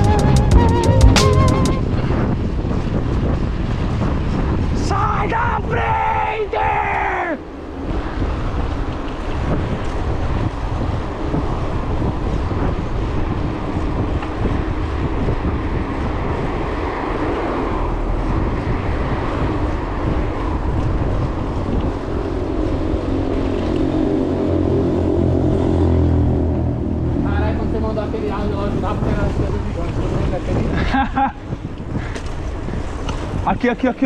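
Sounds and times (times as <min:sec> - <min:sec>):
wind buffeting microphone: 0:00.0 - 0:34.0
tyres rumbling on road: 0:06.7 - 0:34.0
car engine hum: 0:16.2 - 0:29.0.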